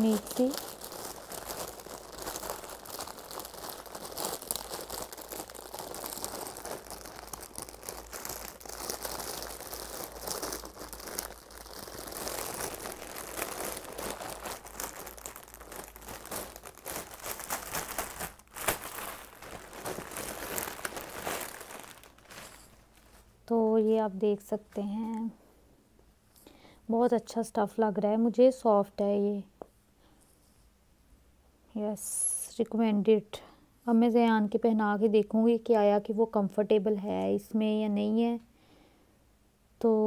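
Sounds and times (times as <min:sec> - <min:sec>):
plastic bag crinkling: 0:00.0 - 0:23.4.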